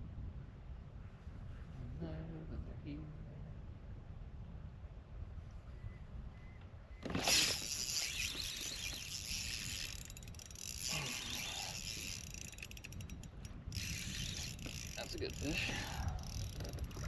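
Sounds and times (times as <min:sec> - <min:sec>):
fishing reel whirring and clicking: 0:07.1 - 0:17.0.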